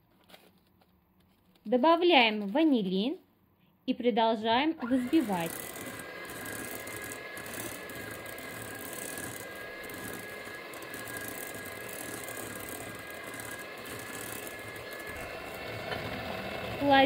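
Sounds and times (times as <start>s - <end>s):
electric hand mixer whisking: 4.8s - 17.0s.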